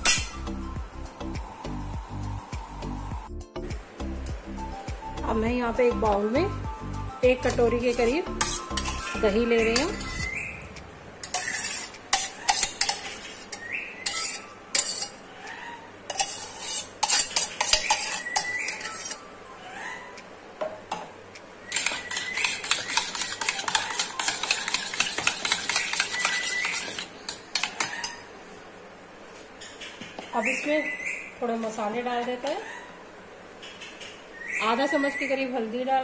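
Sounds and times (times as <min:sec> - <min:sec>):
spoon scraping steel pot: 0:07.4 - 0:10.4, 0:11.2 - 0:15.2, 0:16.1 - 0:19.3, 0:21.7 - 0:28.2
spoon clattering in steel bowl: 0:21.7 - 0:28.2.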